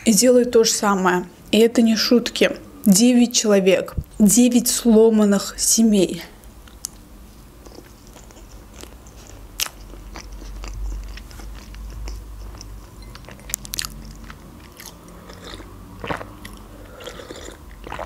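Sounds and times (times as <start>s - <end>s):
person chewing: 7.6s - 18.0s
person sipping from mug: 15.2s - 18.0s.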